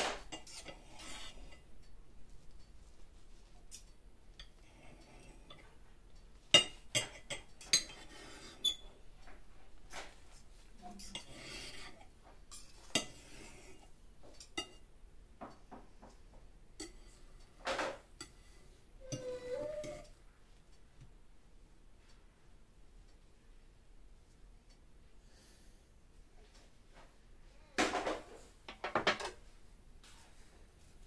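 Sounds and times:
cutlery clinking and scraping on plate: 0.0s - 1.7s, 6.5s - 14.9s, 16.8s - 20.2s, 27.8s - 29.4s.

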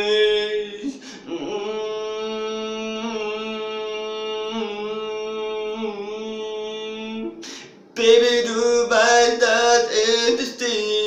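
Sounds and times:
man singing a long note: 0.0s - 7.4s, 8.0s - 11.0s.

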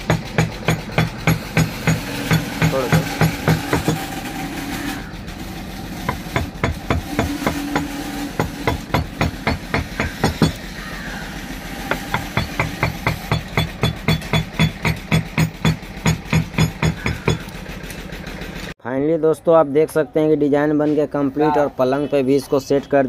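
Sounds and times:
mallet tapping a carving gouge: 0.0s - 4.0s, 6.1s - 10.6s, 11.9s - 17.5s.

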